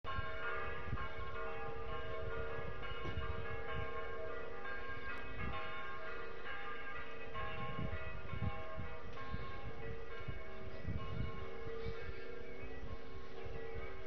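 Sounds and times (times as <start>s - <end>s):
bells ringing: 0.1s - 14.0s.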